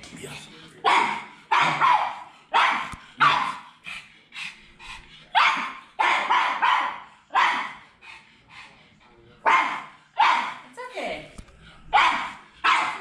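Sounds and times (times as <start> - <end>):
dog barking: 0.8 - 3.7, 5.3 - 7.8, 9.4 - 10.7, 11.9 - 13.0.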